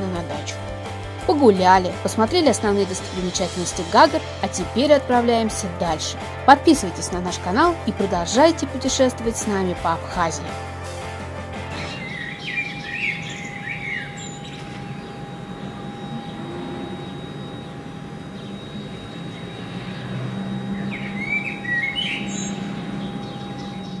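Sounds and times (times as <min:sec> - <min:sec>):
outdoor background hum: 0:00.0 - 0:24.0
small birds chirping: 0:11.8 - 0:24.0
thin steady tone: 0:12.3 - 0:24.0.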